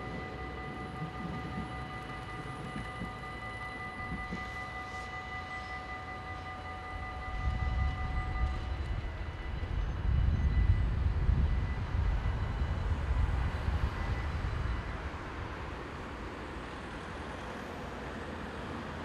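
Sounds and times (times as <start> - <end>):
level crossing warning bells: 0.0 - 19.0.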